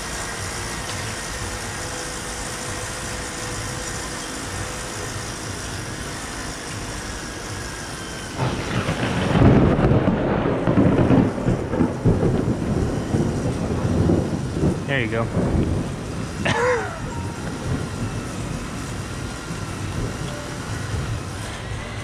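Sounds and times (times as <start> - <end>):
steady background hum: 0.0 - 22.0
thunder crack and rumble: 8.4 - 21.4.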